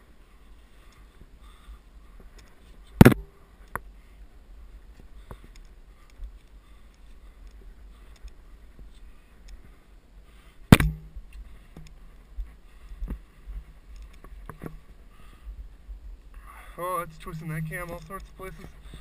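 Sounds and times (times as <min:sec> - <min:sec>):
light clicks: 0:05.0 - 0:08.4
sharp loud clack: 0:10.7 - 0:11.1.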